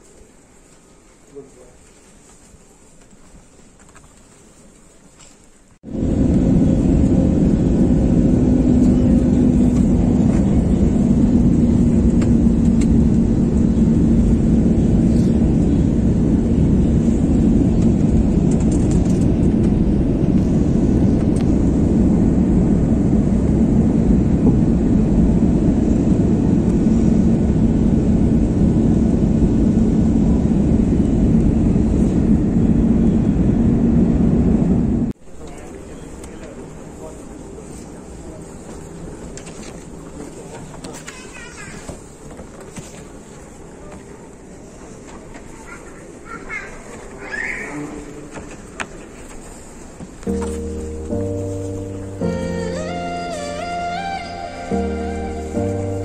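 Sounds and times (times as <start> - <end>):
rushing air: 5.8 - 35.2
jet engines rumbling: 5.8 - 40.9
low steady hum: 5.9 - 35.2, 50.2 - 56.0.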